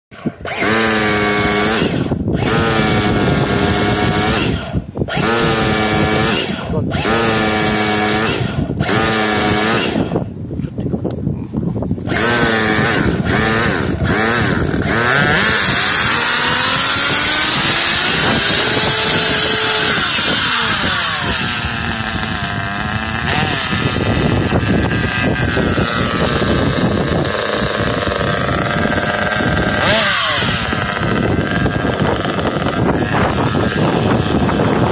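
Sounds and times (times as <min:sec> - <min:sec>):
small engine buzzing and revving: 0:00.1 - 0:10.9, 0:12.0 - 0:34.9.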